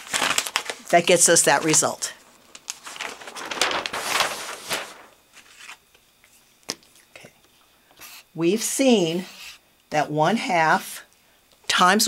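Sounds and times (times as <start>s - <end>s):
paper sheet rustling: 0.0s - 6.0s.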